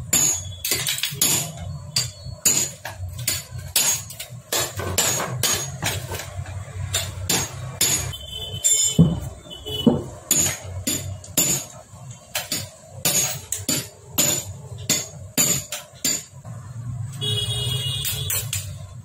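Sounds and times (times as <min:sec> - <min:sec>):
hum with high ringing tone: 0:00.0 - 0:04.2.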